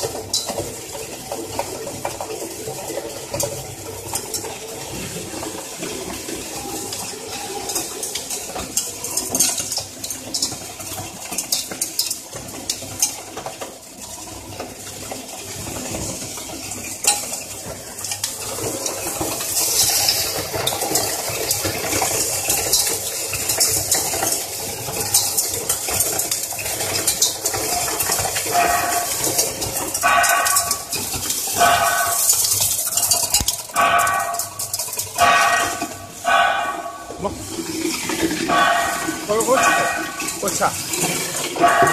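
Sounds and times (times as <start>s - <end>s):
metallic clinks and rattling: 18.1s - 41.9s.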